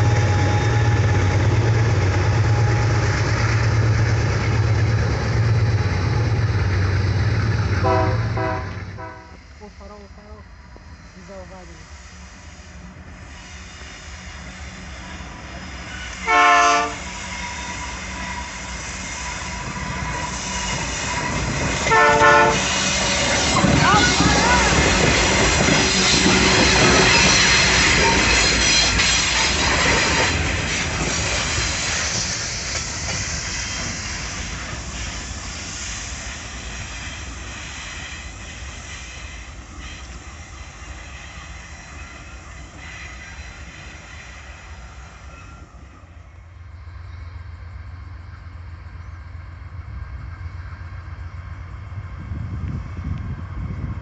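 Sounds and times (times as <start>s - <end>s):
freight train passing: 0.0s - 54.0s
wheels squealing and clacking: 22.6s - 35.2s.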